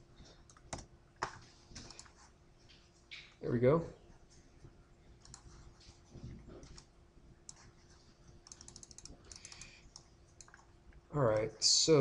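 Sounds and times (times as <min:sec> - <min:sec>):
mouse and keyboard clicks: 0:05.2 - 0:05.6, 0:08.4 - 0:10.7.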